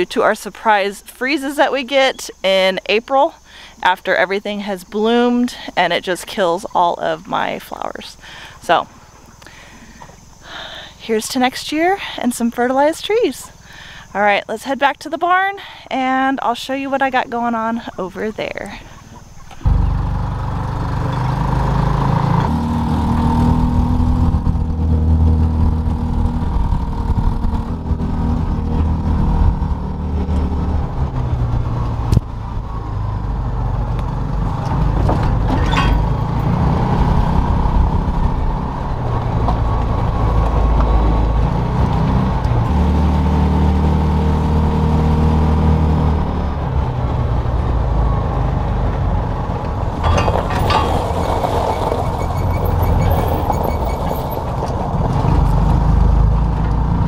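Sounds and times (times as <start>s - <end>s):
small vehicle engine driving: 18.9s - 57.0s.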